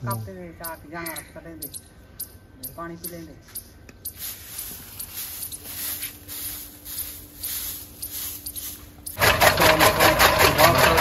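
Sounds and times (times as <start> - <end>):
broom sweeping hard floor: 4.1 - 9.2
chaff cutter chopping fodder: 9.2 - 11.0.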